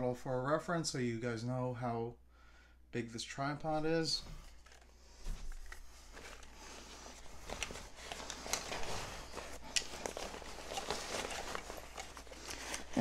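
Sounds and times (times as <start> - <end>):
backpack fabric rustling: 4.7 - 13.0.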